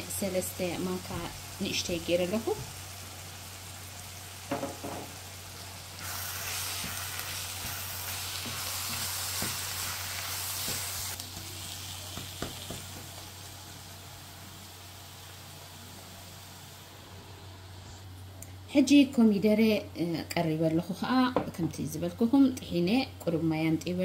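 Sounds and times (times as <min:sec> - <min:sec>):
vegetables sizzling in a frying pan: 0:00.0 - 0:17.8
spoon knocking against pan: 0:04.5 - 0:05.1.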